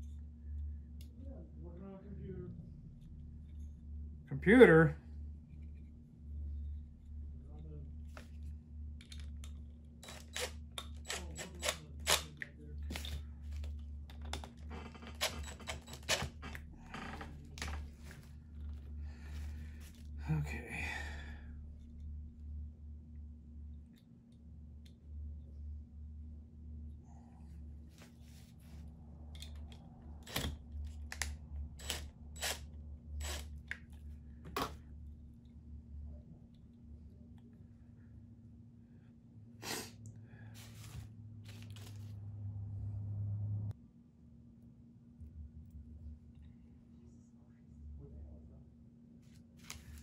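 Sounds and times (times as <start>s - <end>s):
tools and connectors clattering: 9.0s - 16.7s
cordless drill running: 10.0s - 12.2s, 31.8s - 33.6s
impact driver bursts: 10.0s - 12.3s, 15.2s - 16.4s, 31.8s - 33.6s.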